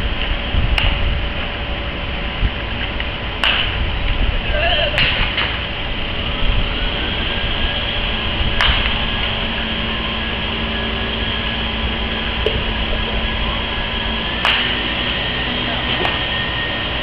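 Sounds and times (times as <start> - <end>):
background rumble and hiss: 0.0 - 6.7
baseball bat hitting ball: 3.4 - 3.8, 8.6 - 9.1, 14.4 - 15.0.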